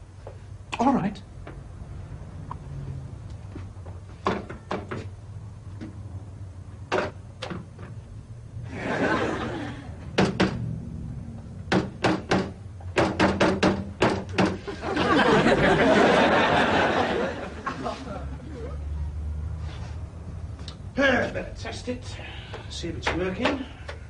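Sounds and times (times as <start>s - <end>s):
knocks and thuds: 10.1s - 10.6s, 11.7s - 14.6s.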